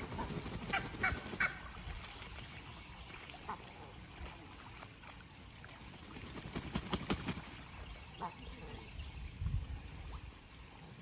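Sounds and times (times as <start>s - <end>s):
waterfowl calling: 0.0s - 2.2s, 3.0s - 4.2s, 7.6s - 9.0s.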